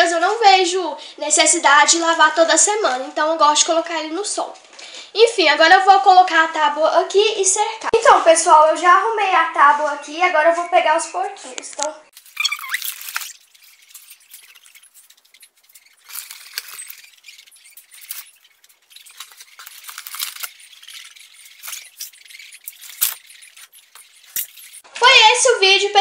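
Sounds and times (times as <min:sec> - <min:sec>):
handling rustling and scuffing: 0:12.2 - 0:24.9.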